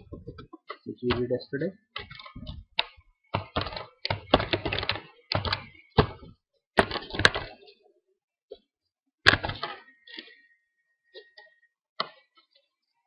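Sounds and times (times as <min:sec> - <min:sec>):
keyboard typing: 0:01.9 - 0:06.2.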